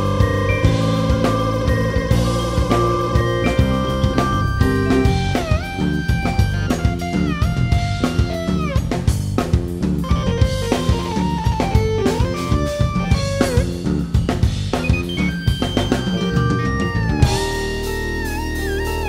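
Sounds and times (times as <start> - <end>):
drum kit beat: 0.0 - 19.0
keyboards: 0.0 - 19.0
lead line bending notes: 0.0 - 19.0
rock band playing live: 0.0 - 19.0.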